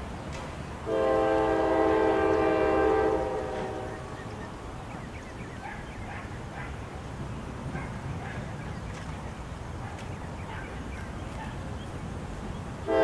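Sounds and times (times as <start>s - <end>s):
train rumbling: 0.0s - 13.0s
locomotive air horn: 0.8s - 4.2s.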